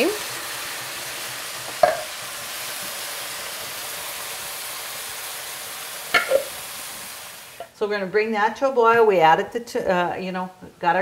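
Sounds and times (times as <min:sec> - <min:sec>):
vegetables sizzling in oil: 0:00.0 - 0:07.9
clinks against a pan: 0:01.8 - 0:02.1, 0:06.1 - 0:06.5.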